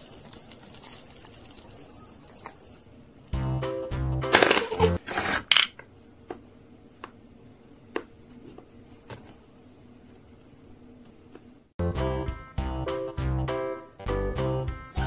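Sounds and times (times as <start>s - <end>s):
background music: 3.3s - 5.0s, 11.8s - 15.0s.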